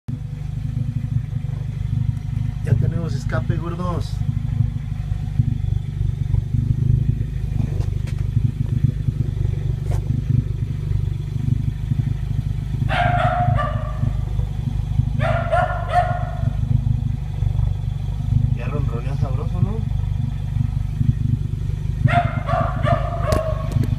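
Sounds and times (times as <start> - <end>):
car engine idling: 0.1 - 23.9
dog barking: 12.9 - 14.3, 15.2 - 16.6, 22.0 - 23.9.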